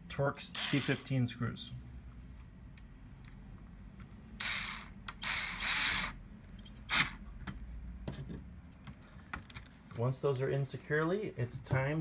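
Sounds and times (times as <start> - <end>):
power screwdriver running: 0.6 - 1.0, 4.4 - 6.2.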